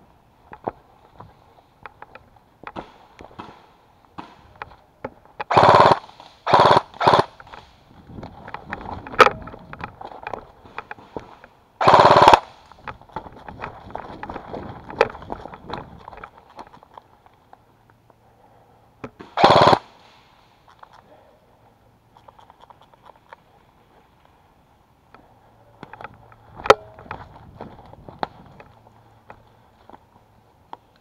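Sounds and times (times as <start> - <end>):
airsoft gun full-auto bursts: 5.5 - 7.4, 11.8 - 12.6, 19.4 - 19.9.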